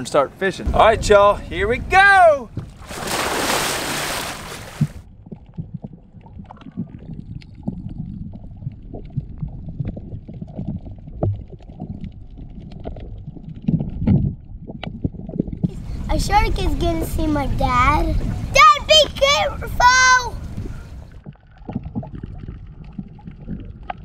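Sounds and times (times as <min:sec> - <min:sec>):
water splashing: 0:00.5 - 0:24.0
low thumps: 0:00.6 - 0:12.0
underwater rumble: 0:00.6 - 0:19.0, 0:19.6 - 0:24.0
underwater clicks and pops: 0:04.7 - 0:15.8, 0:20.5 - 0:24.0.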